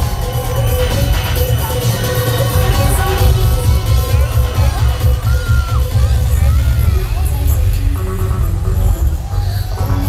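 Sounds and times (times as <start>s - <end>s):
pop dance track with heavy bass: 0.0s - 10.0s.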